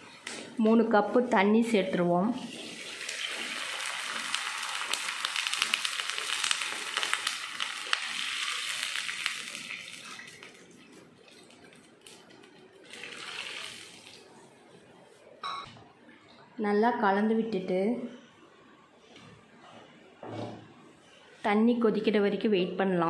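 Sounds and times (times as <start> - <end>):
water hissing in hot oil: 2.4 - 10.6, 12.8 - 14.2.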